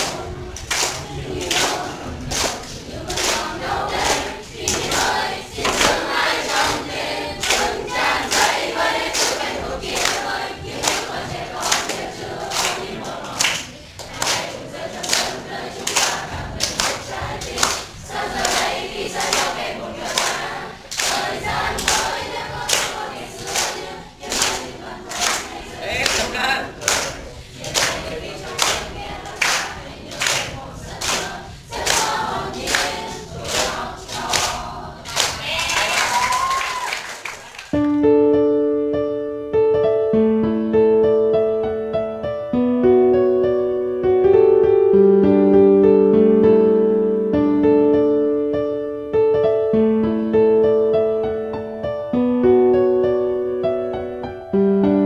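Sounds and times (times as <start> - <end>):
students singing in unison: 0.0 - 36.0
hands clapping to a beat: 0.0 - 38.0.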